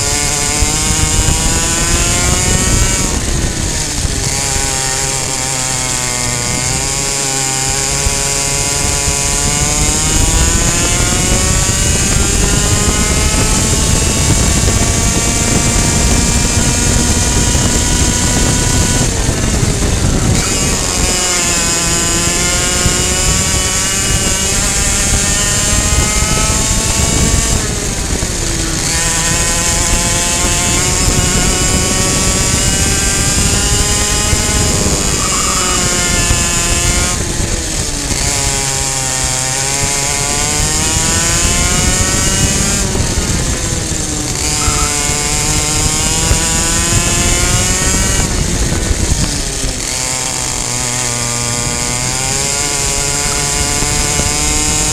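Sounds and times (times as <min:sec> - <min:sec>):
two-stroke kart engine revving: 0:00.0 - 0:54.9.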